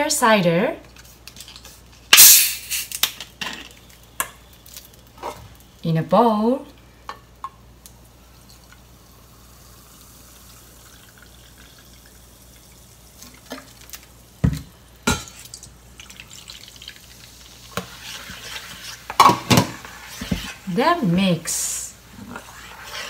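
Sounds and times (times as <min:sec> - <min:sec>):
soda pouring and fizzing: 0:07.9 - 0:20.8.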